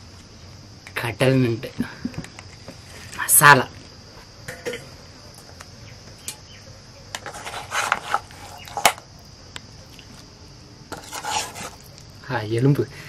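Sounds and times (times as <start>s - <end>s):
metal spoon scraping steel bowl: 7.2s - 8.9s, 10.9s - 11.9s.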